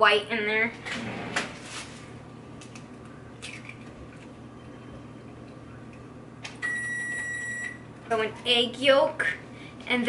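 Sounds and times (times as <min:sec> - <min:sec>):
low steady hum: 0:00.0 - 0:10.0
egg cracking: 0:02.6 - 0:04.4.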